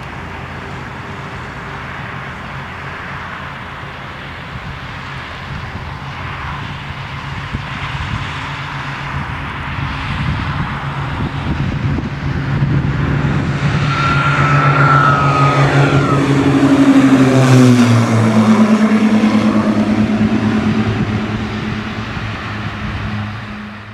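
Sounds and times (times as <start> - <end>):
twin-engine plane taking off: 0.0 - 23.9.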